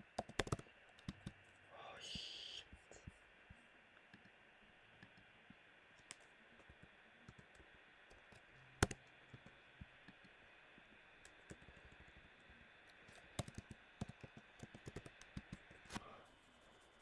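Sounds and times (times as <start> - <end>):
computer keyboard keystrokes: 0.0 - 1.4, 7.3 - 10.3, 11.2 - 12.2, 13.0 - 16.0.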